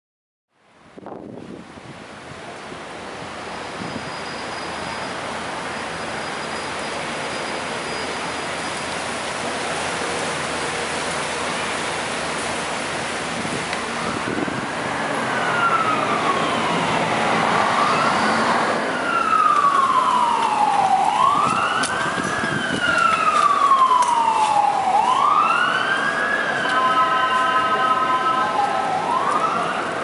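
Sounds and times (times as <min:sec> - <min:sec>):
street noise: 0:00.5 - 0:30.0
emergency siren wailing: 0:09.3 - 0:30.0.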